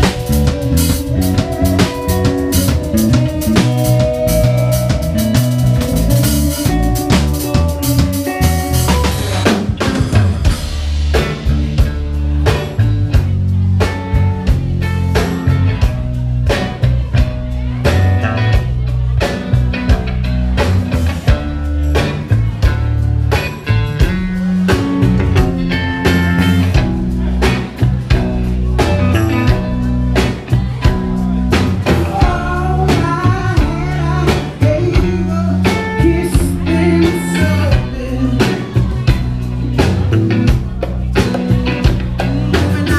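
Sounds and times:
person singing: 0.0 - 10.6, 24.7 - 42.9
bass guitar: 0.0 - 42.9
drum kit beat: 0.0 - 42.9
guitar: 0.0 - 42.9
keyboard: 0.0 - 42.9.

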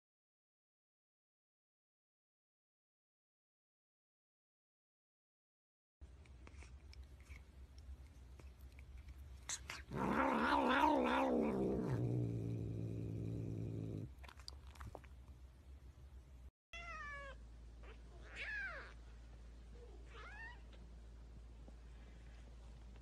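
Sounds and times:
cat yowling: 9.7 - 12.2, 16.8 - 19.0
cat meowing: 9.9 - 12.1, 16.8 - 19.0.

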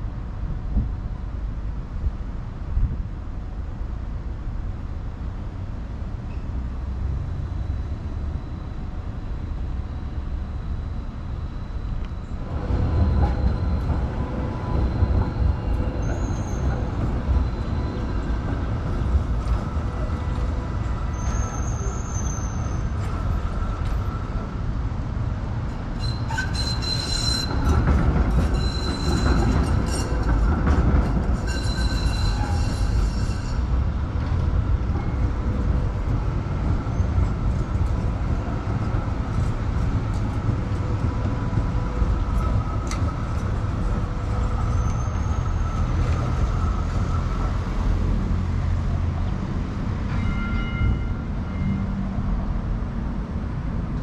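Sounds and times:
tram rumble: 0.0 - 54.0
wheel squeal on rails: 12.6 - 24.4, 25.9 - 33.8, 40.2 - 48.3, 50.1 - 52.0.

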